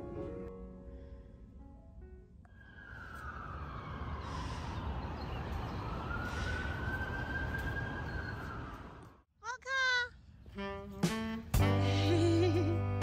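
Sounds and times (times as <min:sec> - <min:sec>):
emergency siren wailing: 0:02.5 - 0:09.2.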